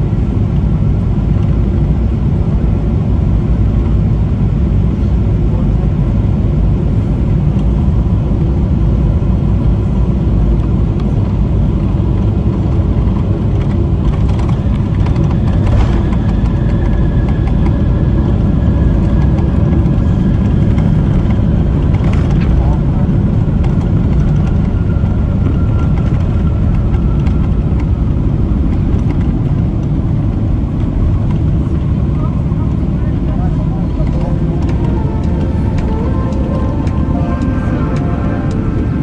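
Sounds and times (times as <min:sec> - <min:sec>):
airflow and jet engine rumble: 0:00.0 - 0:39.0
high steady whine: 0:00.0 - 0:39.0.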